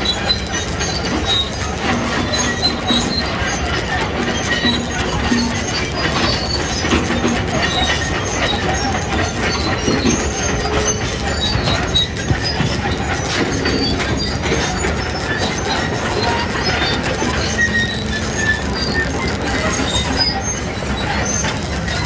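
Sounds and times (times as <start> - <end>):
clatter: 0.0 - 22.0
construction machinery rumbling: 0.0 - 22.0
high metal squeals: 0.0 - 22.0.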